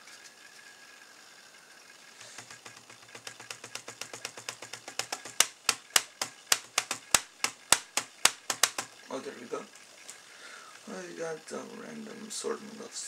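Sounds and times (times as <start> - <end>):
rapid laptop clicking: 2.2 - 9.0.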